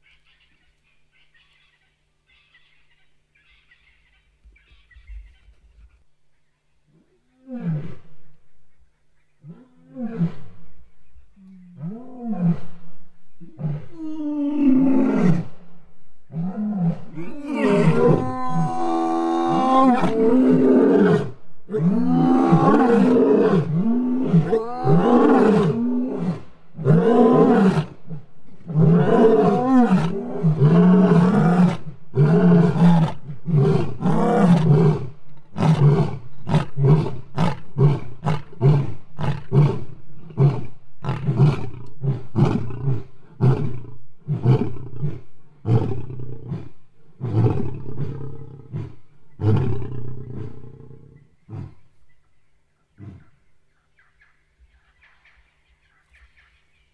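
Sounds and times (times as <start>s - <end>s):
lions roaring: 16.4s - 27.9s.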